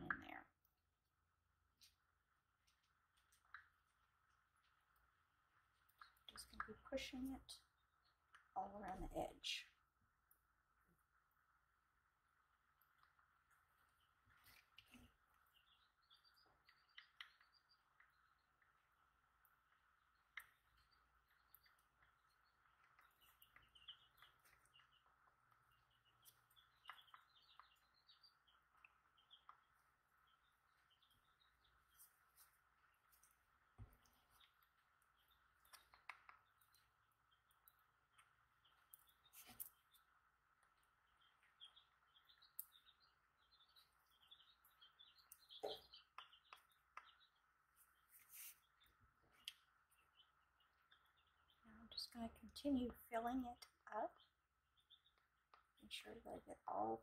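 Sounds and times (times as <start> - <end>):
faint high chirping: 12.9 - 57.0.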